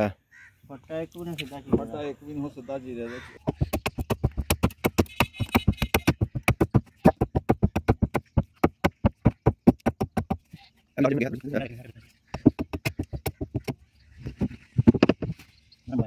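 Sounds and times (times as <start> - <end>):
hatchet chopping wood: 3.4 - 10.4, 12.4 - 13.8.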